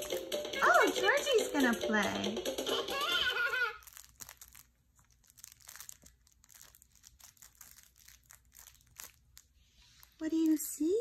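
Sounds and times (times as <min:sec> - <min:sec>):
crinkling of toys: 0:03.0 - 0:11.0.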